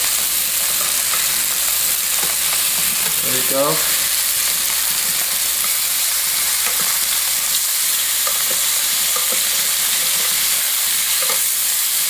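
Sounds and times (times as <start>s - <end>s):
meat sizzling in a pan: 0.0s - 12.0s.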